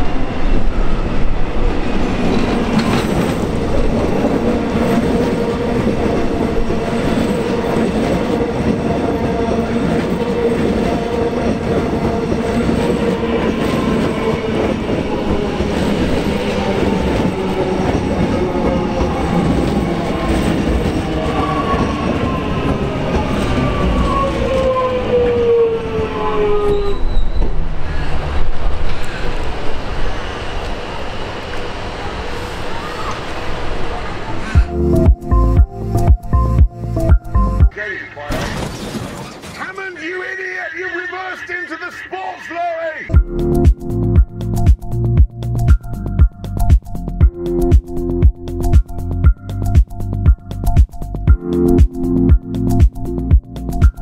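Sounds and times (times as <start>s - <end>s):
wheel and rail rumble: 0.0s - 34.8s
electric train braking to a stop: 0.0s - 36.5s.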